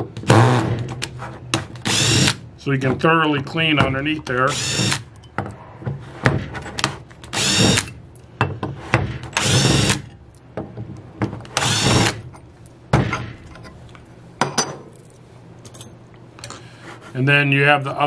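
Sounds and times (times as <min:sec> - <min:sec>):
cordless drill spinning: 0:01.9 - 0:02.4, 0:04.5 - 0:05.0, 0:07.3 - 0:07.9, 0:09.4 - 0:10.1, 0:11.6 - 0:12.2.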